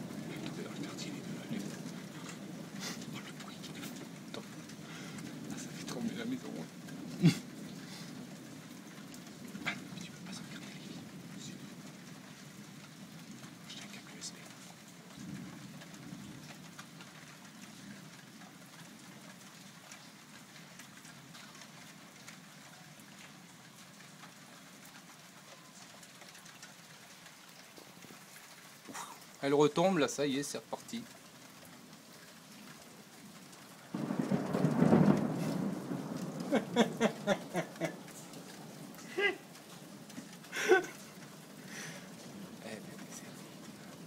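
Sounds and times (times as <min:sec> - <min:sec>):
thunder crack and rumble: 0:00.0 - 0:19.7, 0:33.2 - 0:44.0
rain falling steadily: 0:00.0 - 0:44.0
raindrop ticks: 0:00.0 - 0:44.0.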